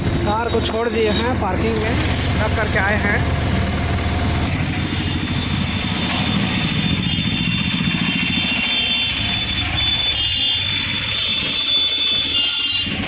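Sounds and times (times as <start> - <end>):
auto-rickshaw engine running: 0.0 - 13.0
road noise: 0.0 - 13.0
thin high whine: 3.9 - 9.9.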